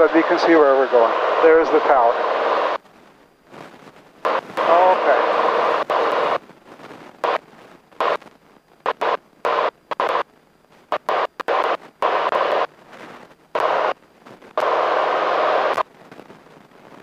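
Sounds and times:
airplane engine and cockpit noise: 0.0 - 17.0.

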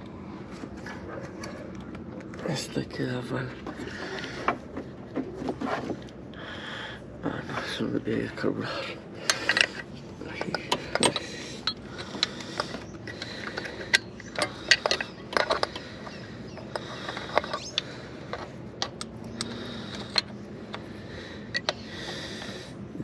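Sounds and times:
metal tools clicking and clinking: 9.2 - 20.4.

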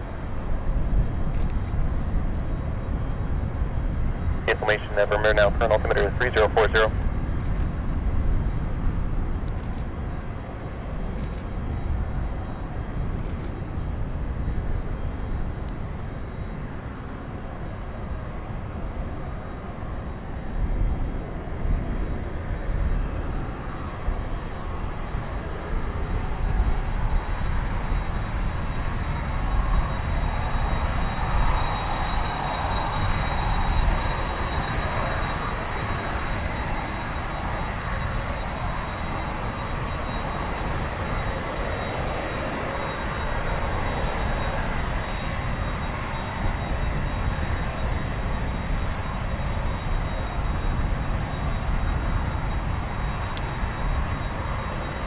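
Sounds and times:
jet engines rumbling with whine: 0.0 - 55.0.

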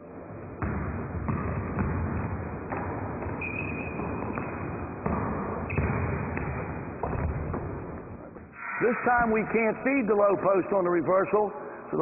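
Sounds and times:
basketball bouncing: 0.4 - 8.1
shoe squeaks: 3.4 - 4.6.

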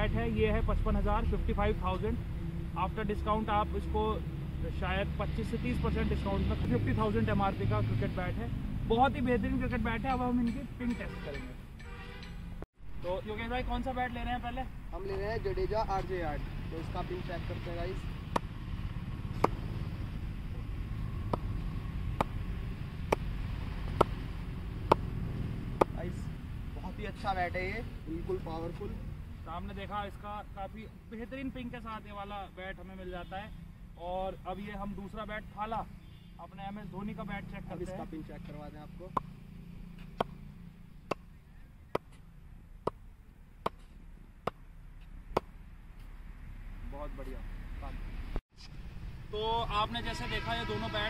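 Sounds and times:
ball bouncing on cricket bat: 18.3 - 18.5, 19.4 - 19.6, 21.2 - 21.5, 23.1 - 23.3, 23.9 - 24.2, 24.8 - 25.1, 25.8 - 26.0, 40.0 - 40.4
ball knocking on cricket bat: 23.9 - 24.2, 24.9 - 25.1.

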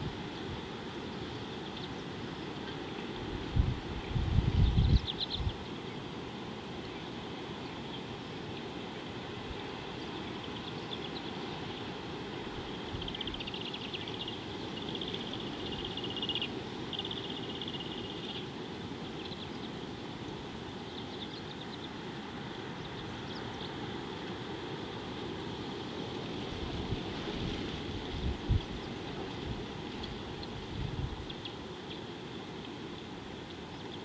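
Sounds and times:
steady high hiss: 0.0 - 34.0
wind rumble on microphone: 3.1 - 5.7, 26.3 - 31.5.

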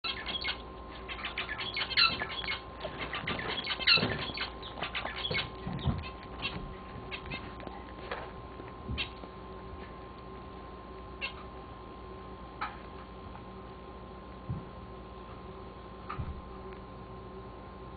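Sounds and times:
rabbit chewing: 0.0 - 11.6.

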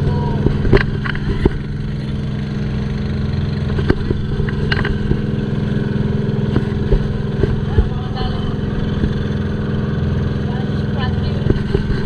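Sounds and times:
engine humming: 0.0 - 12.0
light clicks and knocks: 3.7 - 5.4, 11.4 - 12.0.

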